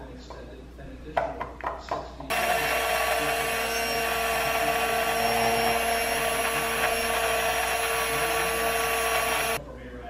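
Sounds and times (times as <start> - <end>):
immersion blender motor whine: 2.3 - 9.6.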